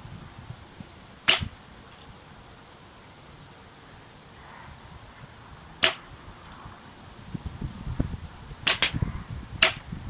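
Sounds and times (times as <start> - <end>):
air rifle shots: 1.3 - 1.6, 5.8 - 6.1, 8.6 - 9.0, 9.6 - 9.9.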